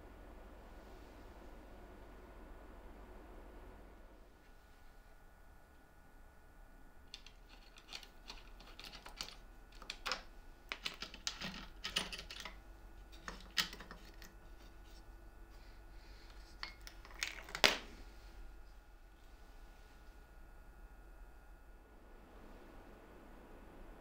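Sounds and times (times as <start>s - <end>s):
wooden clicks and knocks: 7.1s - 12.6s, 13.2s - 14.3s.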